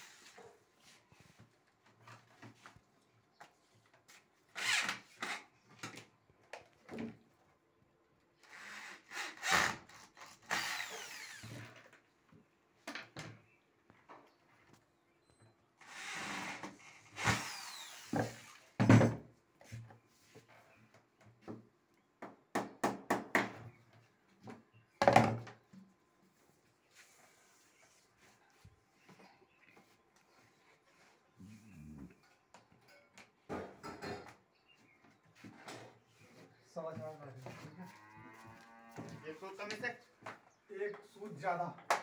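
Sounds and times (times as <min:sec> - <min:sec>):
electric drill running: 0:04.6 - 0:05.4, 0:08.5 - 0:11.8, 0:15.8 - 0:18.6.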